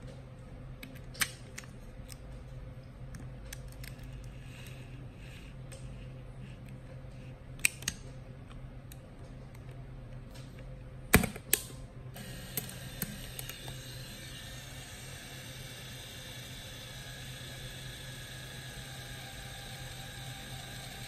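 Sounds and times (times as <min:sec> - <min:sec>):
camera motor whirring: 0:12.2 - 0:21.0.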